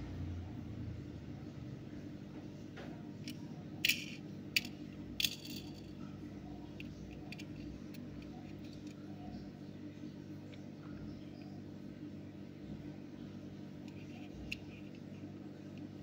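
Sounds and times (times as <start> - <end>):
low steady hum: 0.0 - 16.0
toy car clicking in fingers: 3.2 - 5.7.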